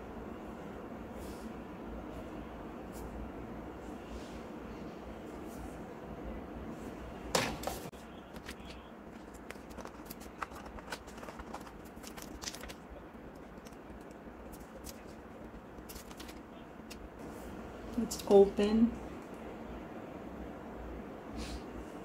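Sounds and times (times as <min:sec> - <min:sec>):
plastic film crackling: 0:08.2 - 0:17.1.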